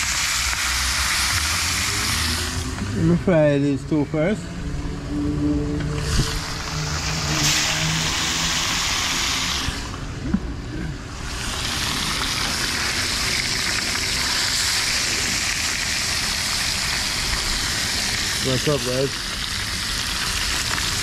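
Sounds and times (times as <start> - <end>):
fish frying in hot oil: 0.0 - 3.1, 6.2 - 10.0, 11.1 - 21.0.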